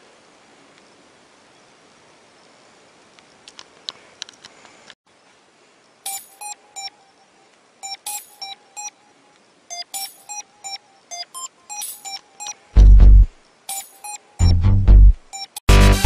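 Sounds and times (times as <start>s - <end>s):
short electronic bleeps: 6.1s - 7.1s, 7.8s - 9.0s, 9.7s - 14.7s.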